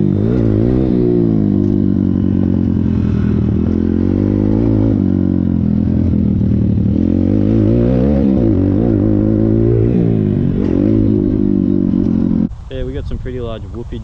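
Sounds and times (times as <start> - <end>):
motorbike engine running hard: 0.0 - 12.5.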